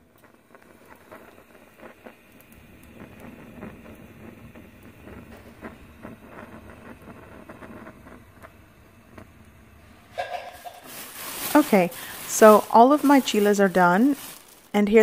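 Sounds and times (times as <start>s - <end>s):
gas burner flame rushing: 0.0s - 15.0s
chile skins crackling and popping: 10.5s - 15.0s.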